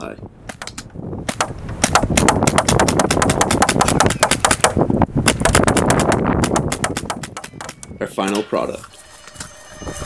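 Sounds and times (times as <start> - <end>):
paintball marker firing: 0.5 - 7.8.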